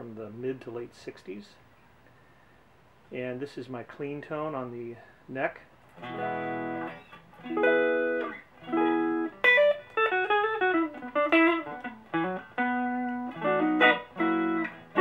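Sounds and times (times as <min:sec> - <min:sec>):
clean electric guitar: 0:05.9 - 0:15.0.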